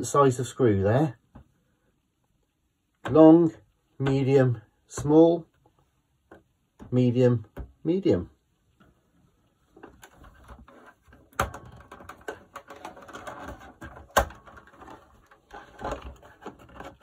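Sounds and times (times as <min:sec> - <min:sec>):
sharp plastic knocks: 0:11.2 - 0:17.0.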